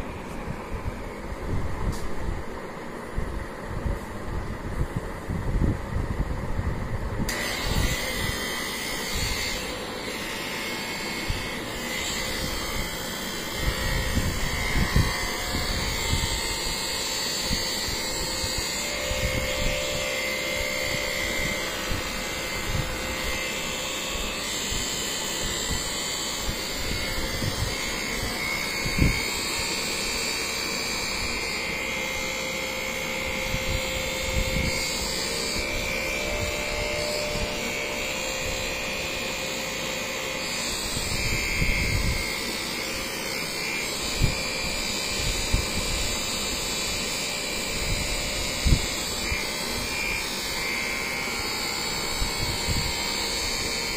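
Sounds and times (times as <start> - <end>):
electric massager motor whirring: 0.0 - 53.9.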